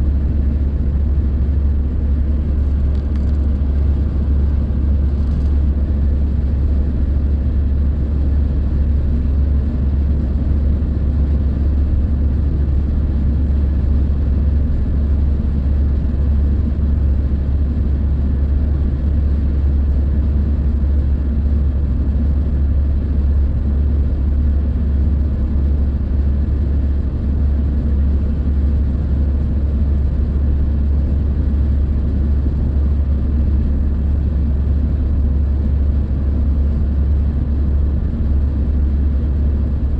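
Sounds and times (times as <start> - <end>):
car road noise rumble: 0.0 - 39.9.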